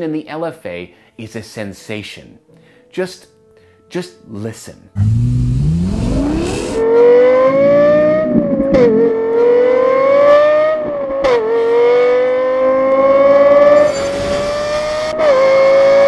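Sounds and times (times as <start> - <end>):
car engine accelerating: 5.0 - 16.0.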